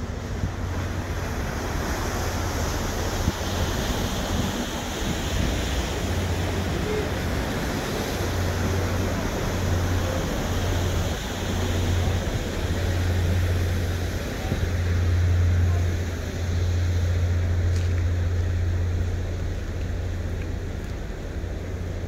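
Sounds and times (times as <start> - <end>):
wind noise on microphone: 0.0 - 15.4
water: 0.0 - 22.0.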